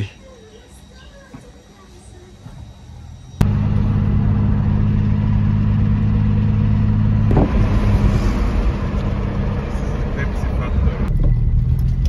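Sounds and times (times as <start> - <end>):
car engine and road drone: 2.0 - 12.0
rough road and wind noise: 3.4 - 12.0.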